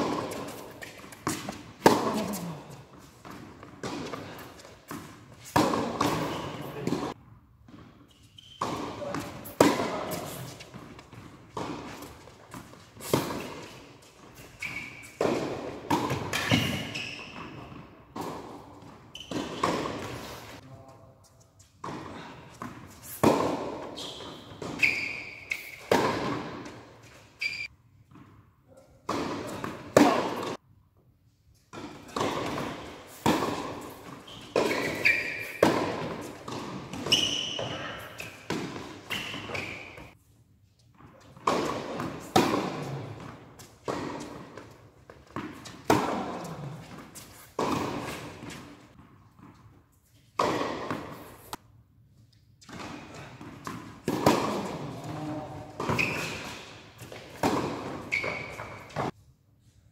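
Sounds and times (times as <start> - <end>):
racket striking tennis ball: 0.0 - 7.2, 8.6 - 20.6, 21.8 - 28.3, 29.0 - 30.6, 31.7 - 40.2, 41.3 - 51.6, 52.6 - 59.2
tennis ball bouncing: 0.0 - 8.0, 8.6 - 20.2, 21.8 - 28.3, 29.0 - 30.6, 31.7 - 40.2, 41.3 - 51.6, 52.6 - 59.2
shoe squeaks: 8.0 - 9.3, 13.0 - 15.2, 16.3 - 17.7, 19.1 - 20.4, 23.8 - 26.0, 27.0 - 27.7, 33.8 - 40.2, 55.2 - 56.7, 58.0 - 59.1.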